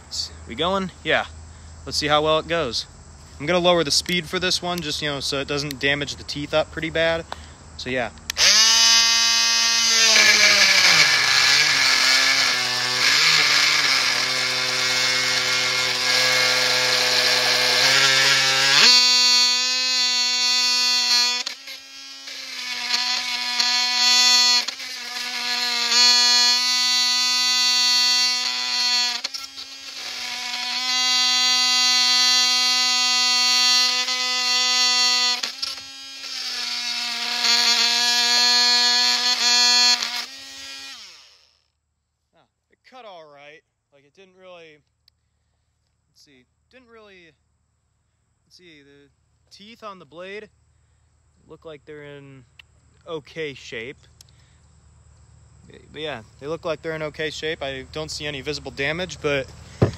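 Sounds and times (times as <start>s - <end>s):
multi-tool cutting through nails: 8.2s - 41.6s, 59.7s - 59.9s.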